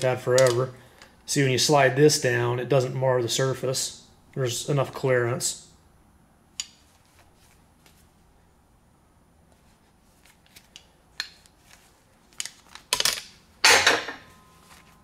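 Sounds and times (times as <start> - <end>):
metal tools clattering: 13.6 - 14.9.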